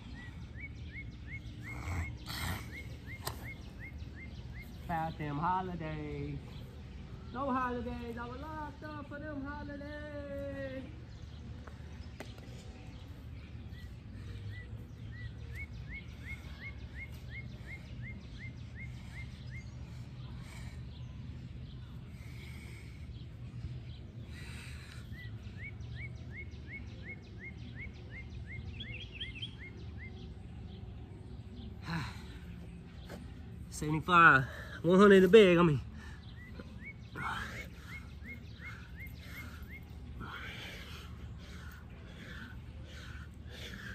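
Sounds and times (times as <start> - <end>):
low outdoor rumble: 0.0 - 43.9.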